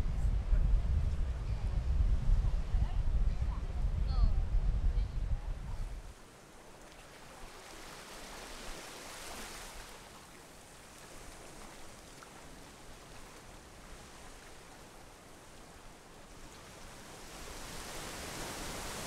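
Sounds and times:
small waves washing on beach: 5.8s - 19.0s.

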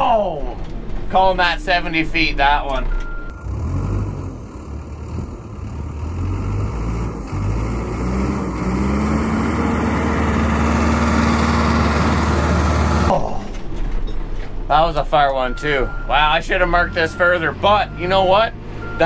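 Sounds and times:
diesel engine running hard: 3.0s - 13.2s, 14.7s - 19.0s.

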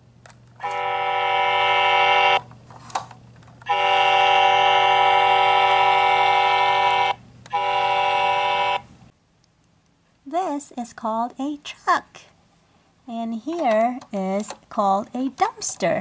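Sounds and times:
toy truck electronic horn honks: 0.6s - 2.4s, 3.7s - 8.9s.

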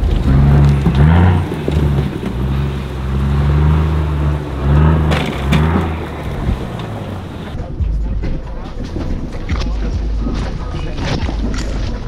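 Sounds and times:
vehicle engine revving: 0.0s - 7.6s.

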